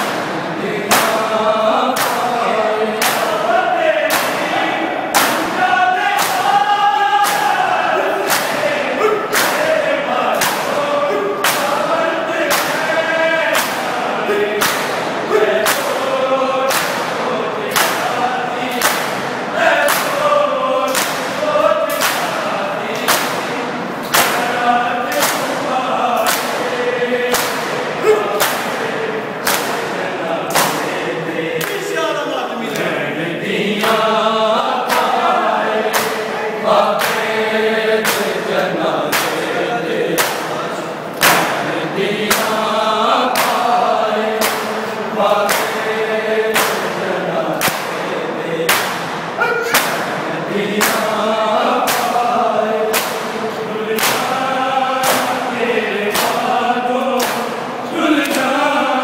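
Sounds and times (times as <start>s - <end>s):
men chanting together: 0.0s - 59.0s
hands slapping bare chests: 1.9s - 2.3s, 3.0s - 3.4s, 4.1s - 4.5s, 6.1s - 6.6s, 7.2s - 8.7s, 9.3s - 9.7s, 10.3s - 10.8s, 11.4s - 12.9s, 13.5s - 14.0s, 14.6s - 16.0s, 16.6s - 20.2s, 20.9s - 22.4s, 23.0s - 24.5s, 25.1s - 25.6s, 26.2s - 29.9s, 30.5s - 30.9s, 34.8s - 36.3s, 37.0s - 37.3s, 38.0s - 39.5s, 40.2s - 40.6s, 41.2s - 41.6s, 42.3s - 42.6s, 43.3s - 44.8s, 45.4s - 45.8s, 46.5s - 46.9s, 47.5s - 48.0s, 48.7s - 49.1s, 49.7s - 50.1s, 50.8s - 51.1s, 51.8s - 52.2s, 52.9s - 53.4s, 54.0s - 54.4s, 55.0s - 55.4s, 56.1s - 56.5s, 57.2s - 57.6s.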